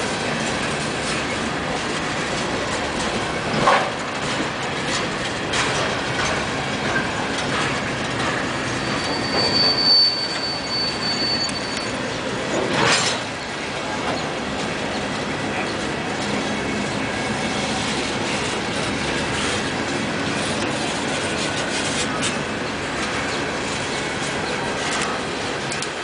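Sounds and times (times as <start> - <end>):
train wheels rumbling on rail: 0.0 - 26.0
high wheel squeal: 8.2 - 13.6.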